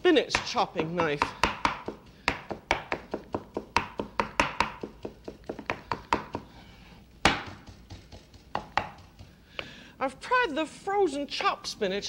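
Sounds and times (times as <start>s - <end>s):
knife chopping on wooden board: 0.3s - 6.5s, 7.2s - 9.7s.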